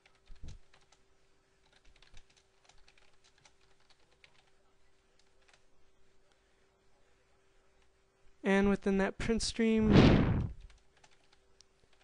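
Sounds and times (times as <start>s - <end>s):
computer keyboard typing: 0.0s - 1.0s, 1.6s - 4.6s, 5.2s - 5.6s, 10.6s - 12.0s
faint steady hum: 0.0s - 12.0s.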